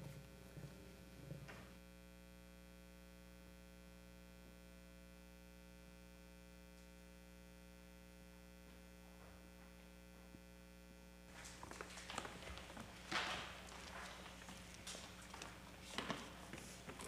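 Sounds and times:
footsteps and shuffling on stage: 0.0 - 1.8, 8.6 - 10.4, 11.3 - 17.0
faint electrical mains hum: 0.0 - 17.0.

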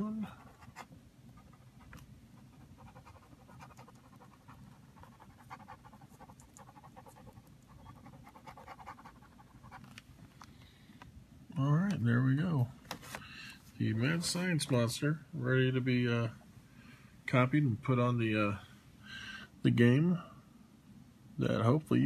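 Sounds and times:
low steady hum: 0.0 - 22.0
pen scribbling on paper: 0.3 - 9.9.

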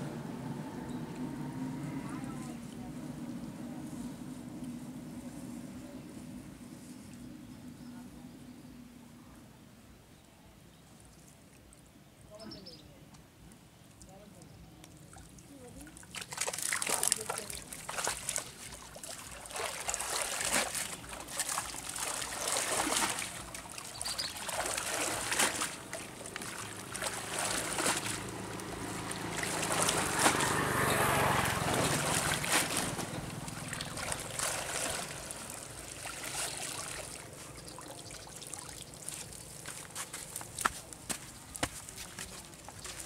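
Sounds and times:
water splashing and sloshing: 14.8 - 43.0.

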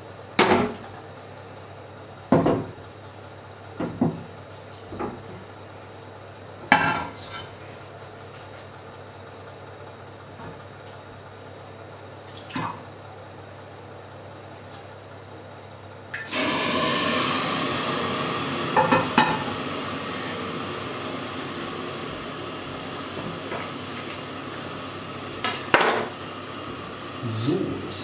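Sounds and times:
pots and lids clanking: 16.2 - 26.3
sizzling hiss: 16.2 - 28.0.

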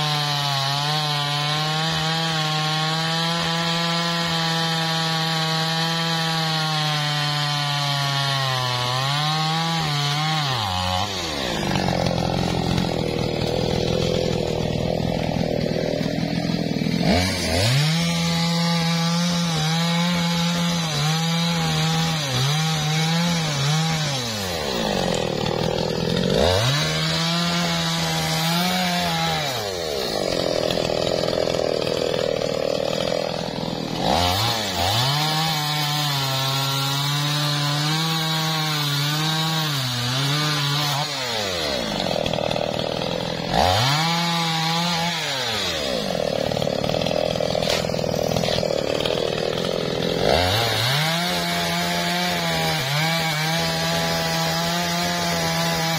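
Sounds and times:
chainsaw cutting log: 0.0 - 55.9.

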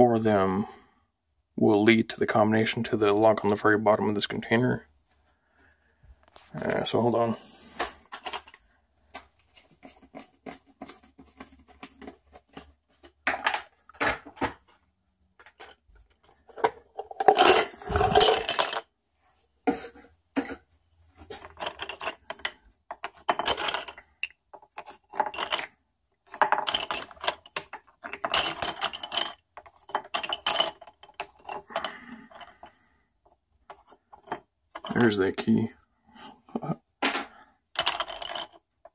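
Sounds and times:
wooden sticks clattering: 15.4 - 18.8, 21.2 - 25.7, 26.3 - 32.7, 37.0 - 38.9.

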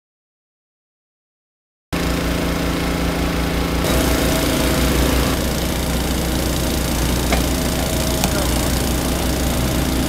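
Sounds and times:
plate compactor engine running: 2.0 - 10.0.

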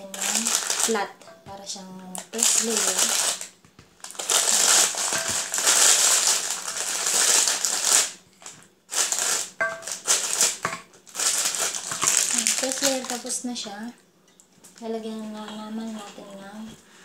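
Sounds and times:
foil wrapper crinkling: 0.0 - 1.2, 2.2 - 13.5.

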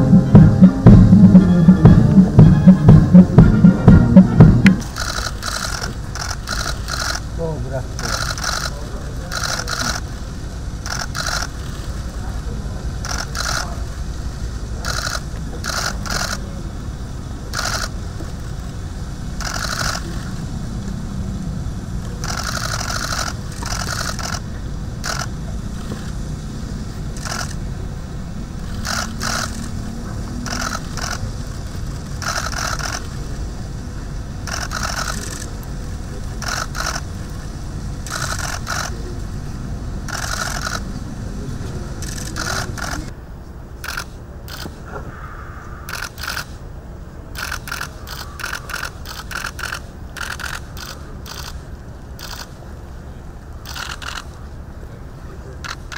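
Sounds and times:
low rumble: 0.0 - 5.4
camera shutters clicking: 4.9 - 7.2, 8.0 - 10.0, 10.8 - 11.8, 17.6 - 17.9, 27.2 - 27.6, 28.7 - 29.8, 30.5 - 31.2, 32.2 - 33.1, 34.5 - 35.5, 38.1 - 39.0, 40.1 - 40.8, 42.0 - 43.1, 43.8 - 44.8, 45.9 - 46.5, 47.4 - 51.6, 52.2 - 52.5, 53.6 - 54.4, 55.6 - 55.9.

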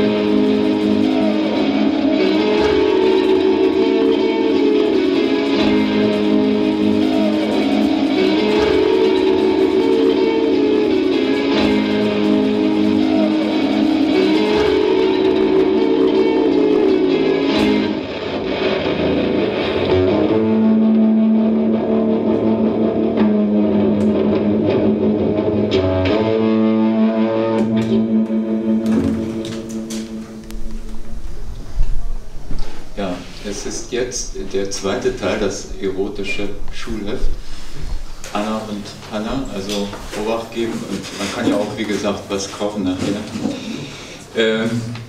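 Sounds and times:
electric guitar improvisation: 0.0 - 42.3.

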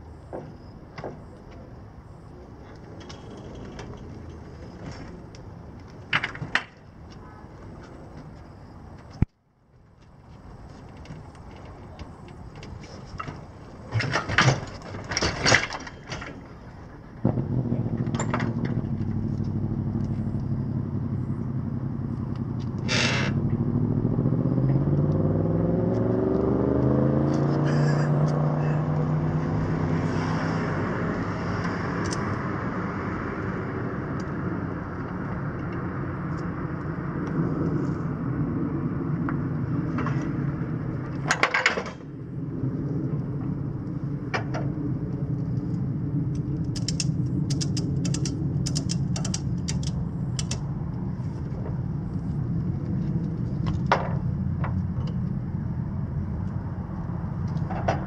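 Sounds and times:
low engine rumble: 0.0 - 58.0
tie-down straps clattering: 10.9 - 16.8
vehicle passing by: 16.9 - 41.3
ratchet clicks: 46.7 - 50.7.

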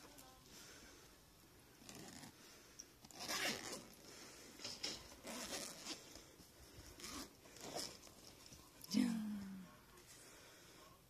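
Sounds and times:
zipper rasping open: 1.8 - 2.4, 3.0 - 4.0, 5.1 - 6.2, 6.8 - 8.2.

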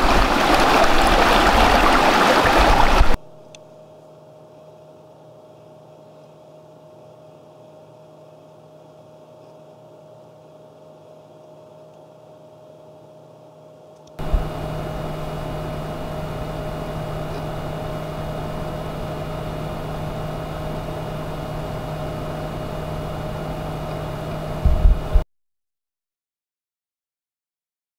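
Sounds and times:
computer cooling fans whirring: 0.0 - 25.2.

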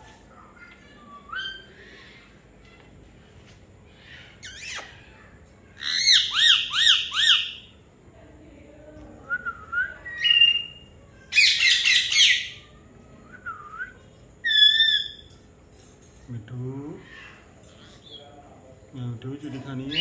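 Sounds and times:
parakeet chirps: 4.2 - 5.0, 14.4 - 15.3
parakeet squawking: 5.8 - 7.6, 11.4 - 12.6.

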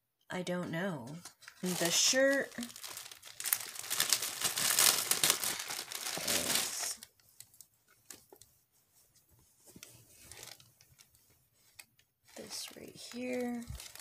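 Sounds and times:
soft rustling: 1.2 - 14.0
packaging crinkling and tearing: 1.4 - 8.5, 10.2 - 11.1, 12.3 - 14.0.

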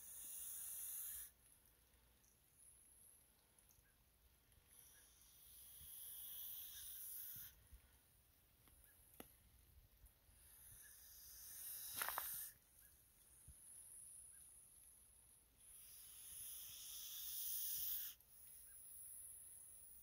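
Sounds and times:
snake hissing: 0.0 - 1.4, 4.7 - 7.6, 10.4 - 12.6, 15.6 - 20.0.

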